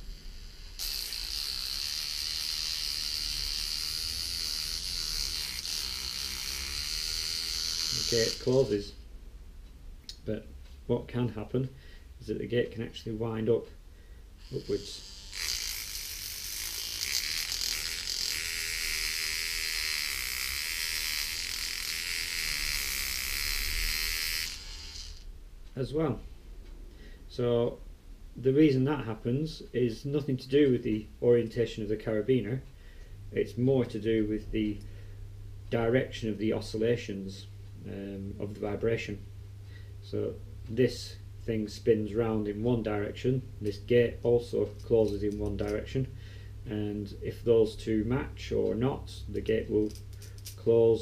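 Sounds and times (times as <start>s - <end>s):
trimmer motor buzzing: 0.0s - 8.8s, 14.4s - 25.3s.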